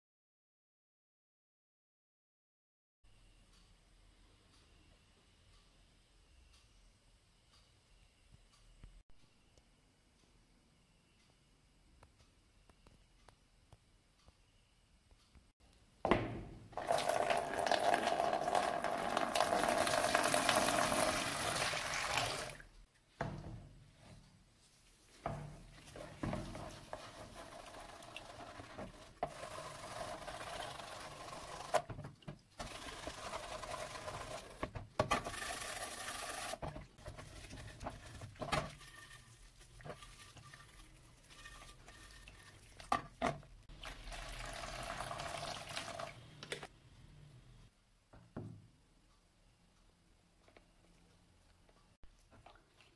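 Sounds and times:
liquid pouring into plastic tray: 0:16.8 - 0:22.6.

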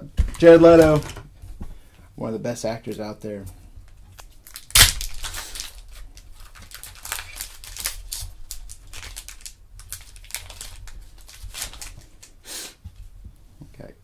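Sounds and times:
foil wrapper crinkling: 0:04.1 - 0:12.4
foil wrapper ripping: 0:04.2 - 0:12.3.

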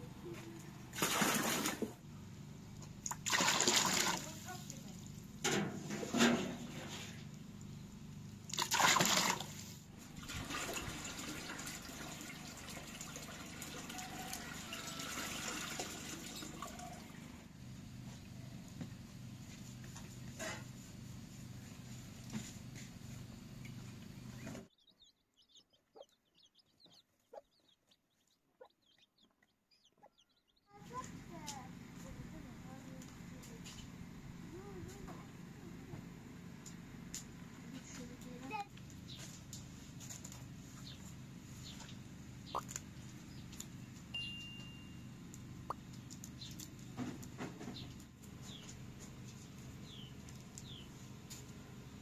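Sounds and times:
steady low hum: 0:17.1 - 0:52.0
small birds chirping: 0:17.7 - 0:35.6, 0:36.5 - 0:52.0
chickens clucking softly: 0:24.4 - 0:31.1, 0:41.7 - 0:43.7
faint high chirps: 0:43.8 - 0:45.8.

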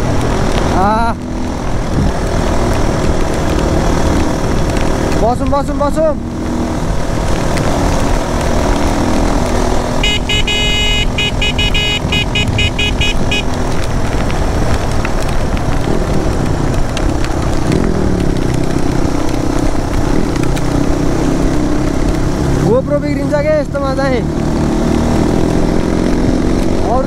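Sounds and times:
motorcycle engine running: 0:00.0 - 0:22.9
wind and road noise: 0:00.0 - 0:27.0
horn beeping rapidly: 0:10.0 - 0:13.5.

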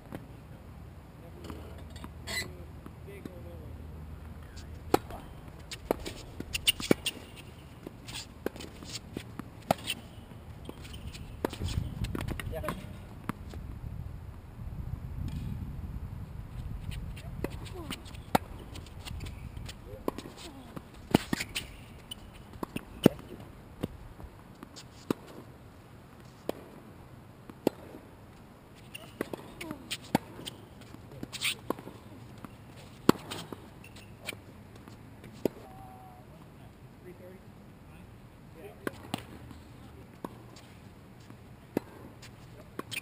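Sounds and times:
rackets striking tennis ball: 0:04.5 - 0:13.6, 0:17.1 - 0:24.0, 0:27.5 - 0:28.0, 0:28.8 - 0:35.7
sneakers shuffling on court: 0:04.5 - 0:13.6, 0:16.5 - 0:23.5, 0:28.3 - 0:35.5.

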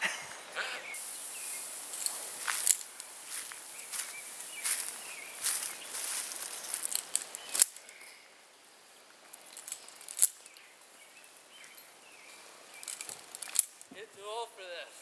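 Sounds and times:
rope gear clicks: 0:06.8 - 0:08.1, 0:12.8 - 0:13.9.

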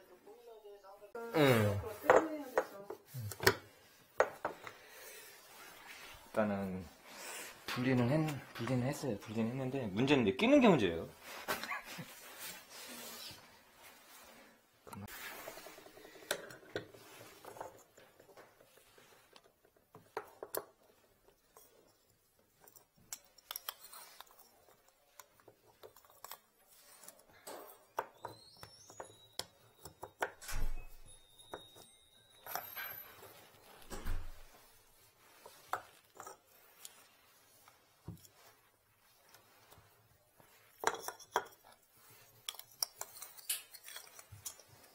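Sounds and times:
thin squeaks: 0:25.9 - 0:44.9.

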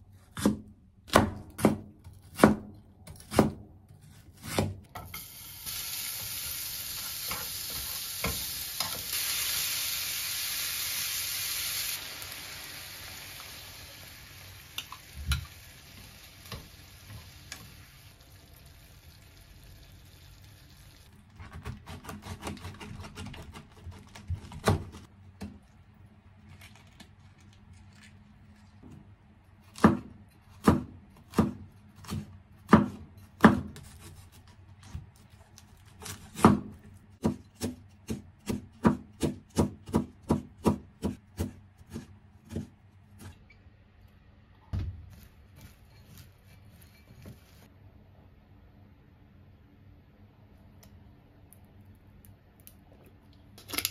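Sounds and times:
knife chopping on cutting board: 0:00.3 - 0:04.9, 0:29.7 - 0:35.1, 0:36.0 - 0:43.3
onions sizzling in a frying pan: 0:05.1 - 0:21.1.

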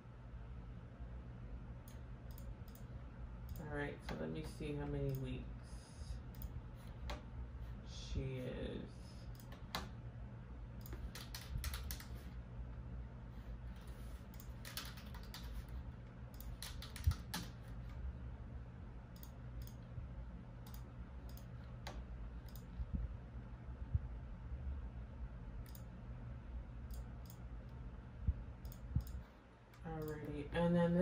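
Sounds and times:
low steady hum: 0:00.0 - 0:31.0
keyboard typing: 0:01.8 - 0:02.9, 0:10.8 - 0:12.4, 0:13.8 - 0:18.0, 0:20.6 - 0:22.8, 0:25.6 - 0:25.9.

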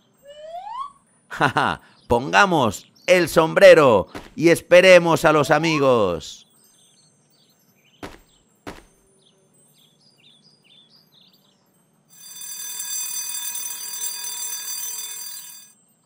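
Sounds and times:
faint birds chirping: 0:00.0 - 0:12.1
short pops: 0:04.1 - 0:04.4, 0:08.0 - 0:09.0
alarm clock bell ringing: 0:11.8 - 0:16.0.

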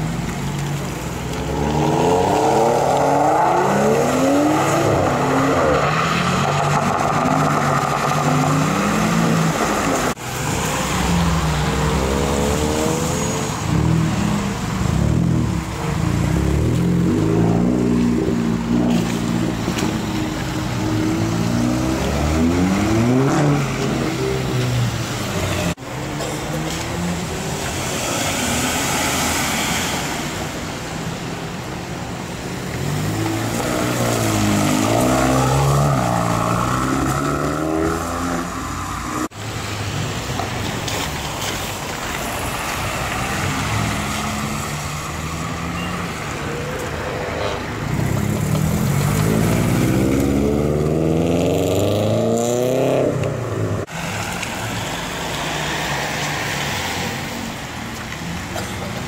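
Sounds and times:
car engines revving: 0:00.0 - 0:59.0.

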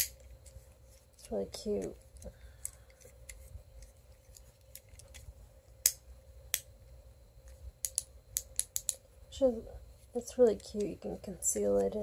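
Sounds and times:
fidget cube clicks: 0:07.8 - 0:09.0.

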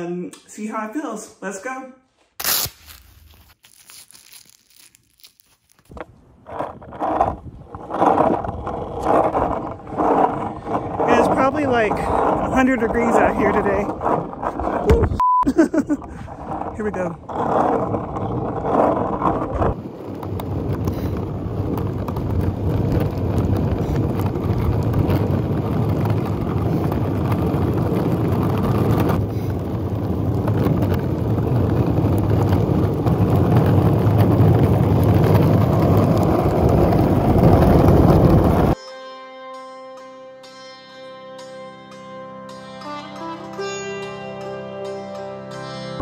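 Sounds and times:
skateboard rolling on asphalt: 0:05.9 - 0:38.8.

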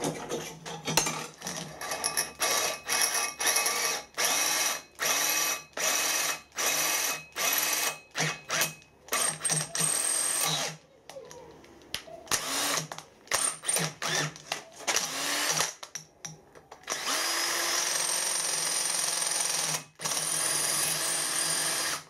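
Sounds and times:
cordless drill bursts: 0:01.8 - 0:10.8, 0:12.3 - 0:15.8, 0:16.9 - 0:22.0.

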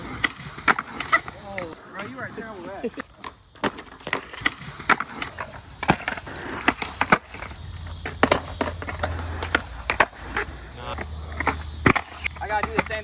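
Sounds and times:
skateboard wheels rolling on concrete: 0:00.0 - 0:13.0
skateboard wooden clacks: 0:03.0 - 0:13.0.

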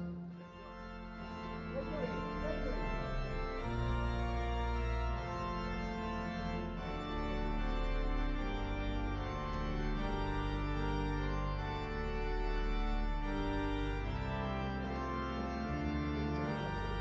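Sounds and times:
organ playing slow chords: 0:00.0 - 0:17.0.

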